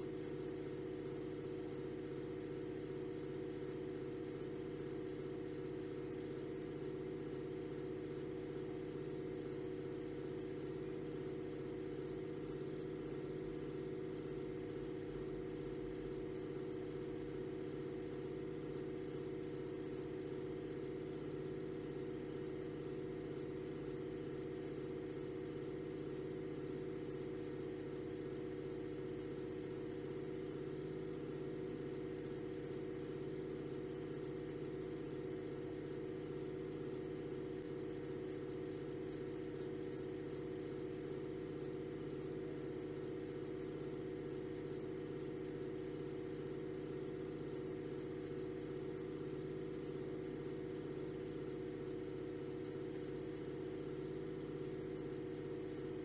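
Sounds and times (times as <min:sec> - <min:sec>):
steady hum with held tones: 0:00.0 - 0:56.0.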